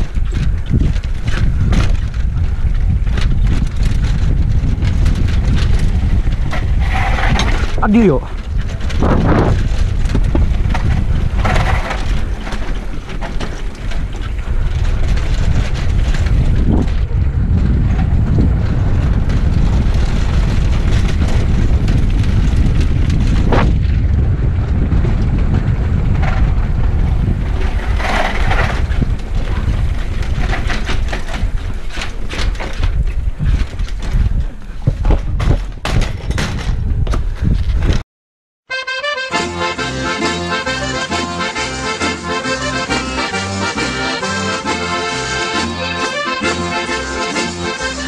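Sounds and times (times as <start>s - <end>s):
bike tyres rumbling on cobblestones: 0.0s - 38.0s
wind buffeting microphone: 0.0s - 38.0s.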